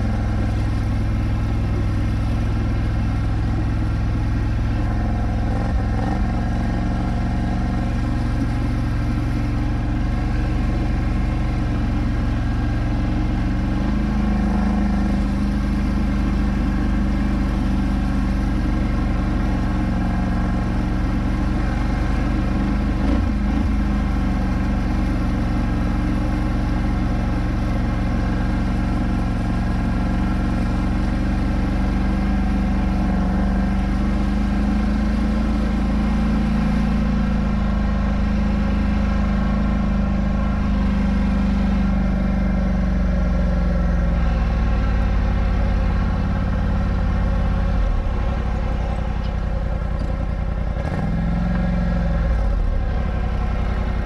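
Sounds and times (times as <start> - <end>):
quad engine running: 0.0 - 54.0.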